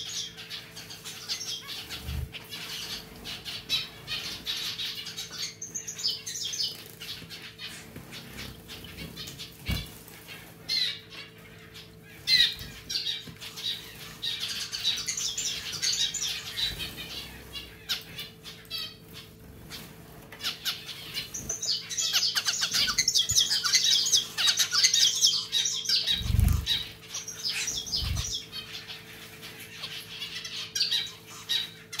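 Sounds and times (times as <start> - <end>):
finches chirping: 0.0 - 32.0
wing fluttering: 6.6 - 10.9, 25.9 - 29.5.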